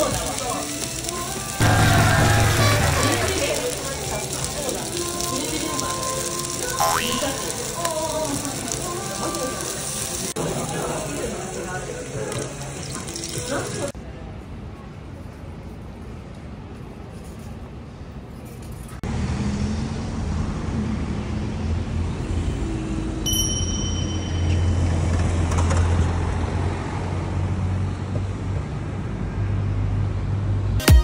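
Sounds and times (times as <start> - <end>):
cars passing on street: 0.2 - 5.2, 19.0 - 30.8.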